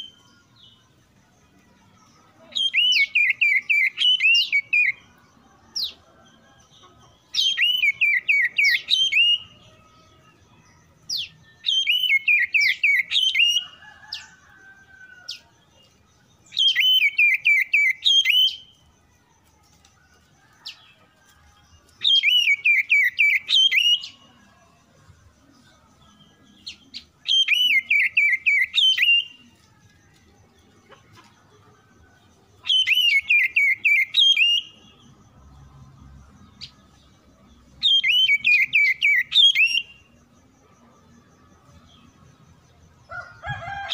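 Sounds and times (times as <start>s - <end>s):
bird song whistled notes: 0.0s - 0.9s, 2.3s - 15.3s, 16.4s - 18.9s, 21.9s - 24.4s, 26.0s - 29.4s, 32.6s - 35.1s, 37.7s - 40.0s.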